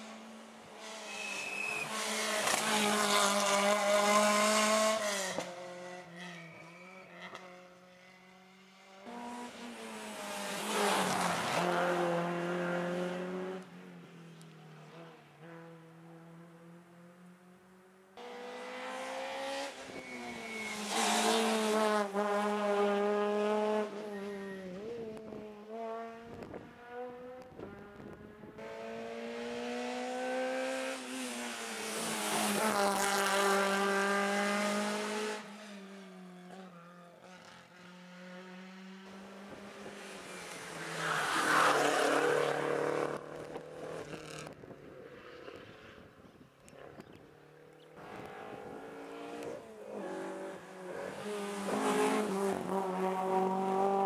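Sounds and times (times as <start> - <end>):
rally car engine revving: 48.0 - 54.0.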